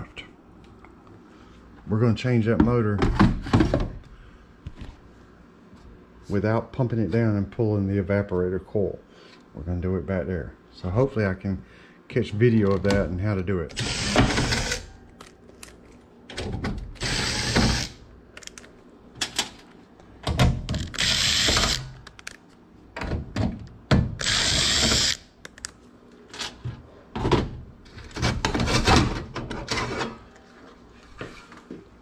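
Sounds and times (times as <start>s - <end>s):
cordless driver whirring: 13.7s - 15.3s, 17.0s - 18.0s, 20.7s - 22.0s, 24.2s - 25.2s.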